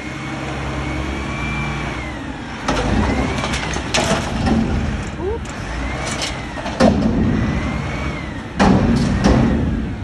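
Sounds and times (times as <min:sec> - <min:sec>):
hydraulic whine: 0:00.0 - 0:10.0
truck engine running under load: 0:00.0 - 0:10.0
trash clattering and banging: 0:02.6 - 0:07.4.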